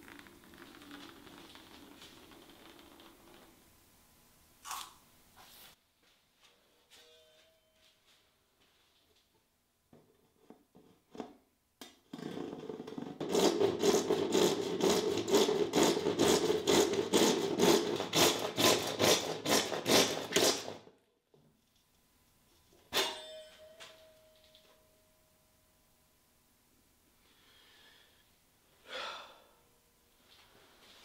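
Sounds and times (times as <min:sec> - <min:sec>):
hand saw cutting wood: 0:13.2 - 0:20.8
sharp ringing knock: 0:23.0 - 0:25.0.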